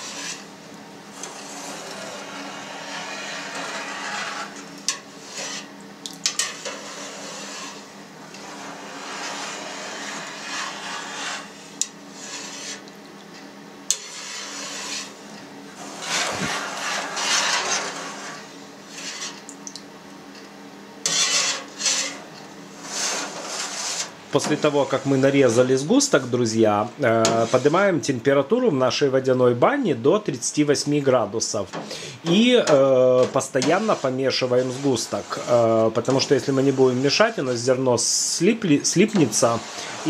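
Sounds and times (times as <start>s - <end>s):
wire harp swishing through curd: 15.8s - 18.0s.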